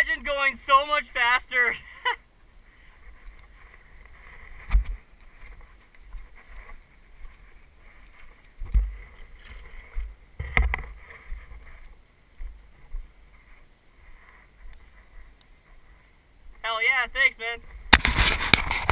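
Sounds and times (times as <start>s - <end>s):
tyre and wind rumble: 2.4s - 16.7s
bike thudding over bumps: 8.5s - 11.7s.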